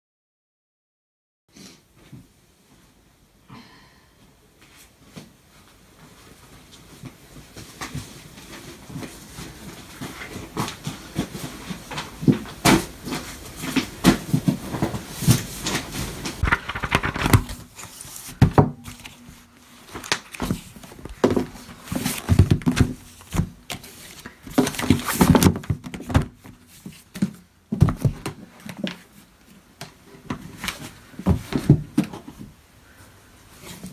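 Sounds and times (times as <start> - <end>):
books and boxes knocking: 9.0 - 17.6, 18.3 - 19.1, 20.3 - 28.4, 31.2 - 32.6.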